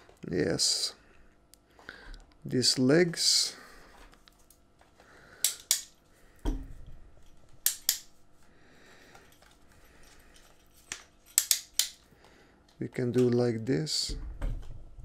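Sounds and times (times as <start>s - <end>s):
tripod hinges clicking: 5.4s - 6.0s, 7.6s - 8.1s, 10.9s - 12.0s.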